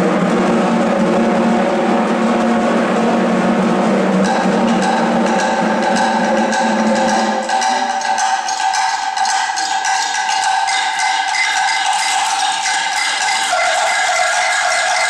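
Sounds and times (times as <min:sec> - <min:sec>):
deeper drum part: 0:00.0 - 0:15.0
snare drums playing fast rhythm: 0:03.1 - 0:15.0.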